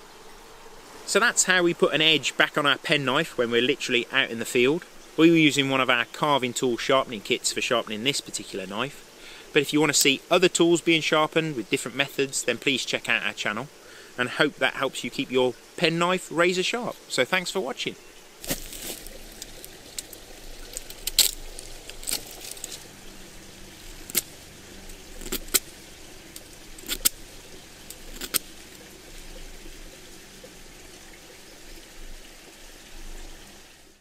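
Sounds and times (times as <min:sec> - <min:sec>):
knife slicing through wood: 0:25.1 - 0:27.2.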